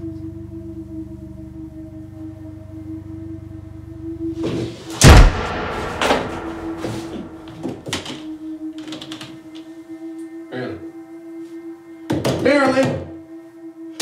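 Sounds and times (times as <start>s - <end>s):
low drone: 0.0s - 8.6s
door slamming: 4.9s - 8.2s.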